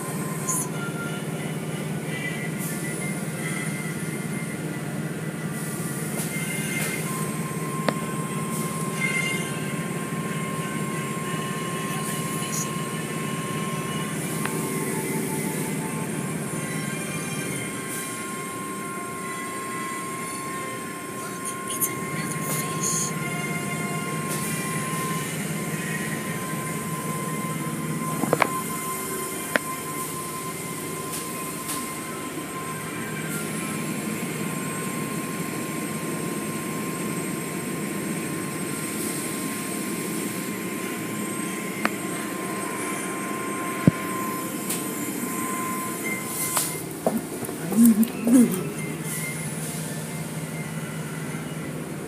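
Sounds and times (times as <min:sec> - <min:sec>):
car wash machinery hum: 0:00.0 - 0:52.0
steady high tone: 0:00.0 - 0:52.0.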